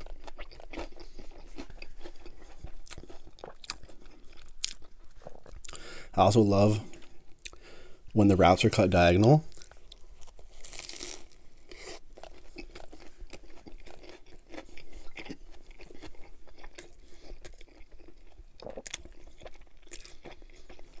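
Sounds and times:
chewing a wrap: 0.0s - 5.9s, 9.4s - 21.0s
crisp crunches: 9.5s - 17.8s.

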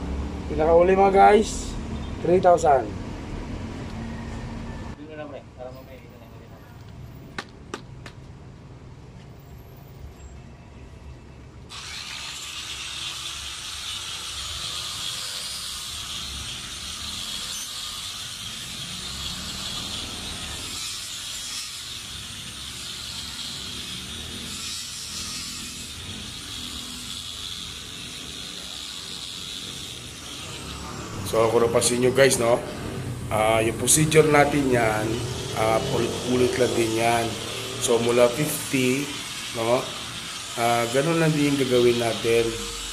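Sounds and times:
electric polisher on stone: 11.7s - 42.9s.

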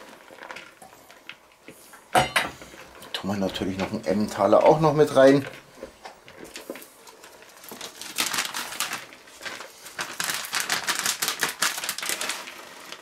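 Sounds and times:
stirring in a plastic bowl: 2.8s - 10.9s.

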